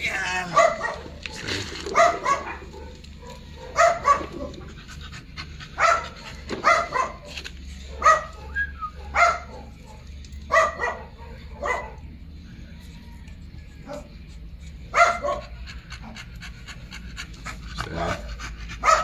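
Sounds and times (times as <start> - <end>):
dog barking: 0.4 - 4.7, 5.8 - 12.1, 13.8 - 14.2, 14.9 - 16.2, 17.8 - 19.0.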